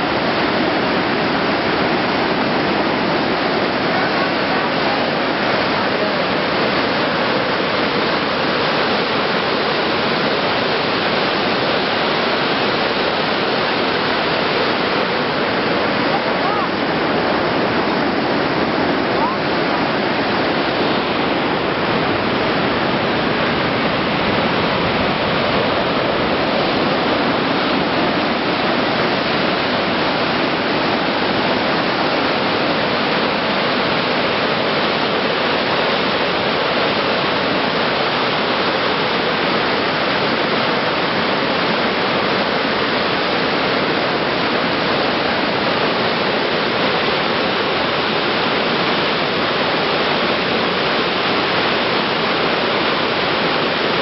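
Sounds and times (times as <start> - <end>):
river water rushing through rapids: 0.0 - 54.0.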